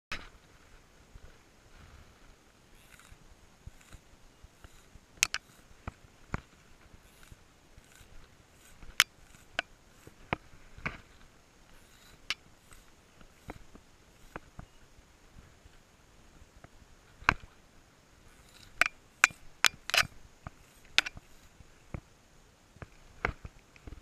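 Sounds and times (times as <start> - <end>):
fishing tackle clicks and taps: 4.6 - 5.6.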